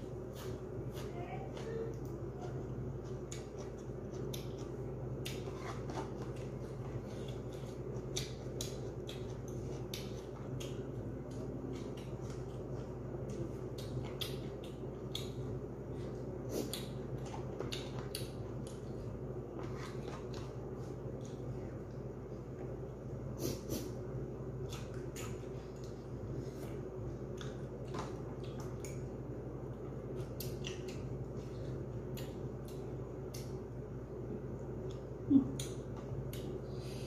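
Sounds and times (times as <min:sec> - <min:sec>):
steady low hum: 0:00.0 - 0:37.0
chewing and mouth smacks: 0:02.9 - 0:23.0, 0:24.4 - 0:33.6.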